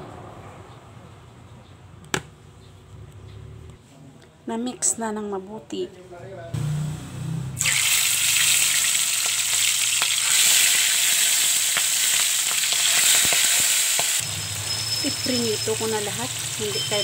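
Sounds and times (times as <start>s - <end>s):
fish frying in hot oil: 7.6s - 17.0s.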